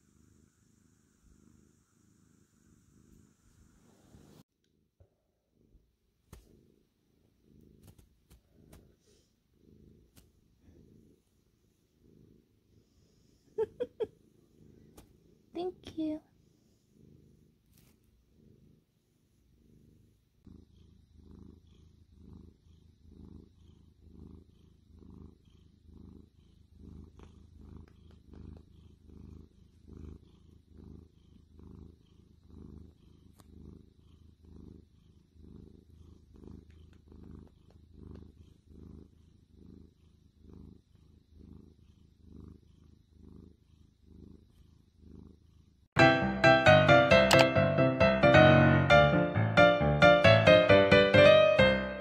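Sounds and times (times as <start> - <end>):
cat purring: 0.0 - 52.0.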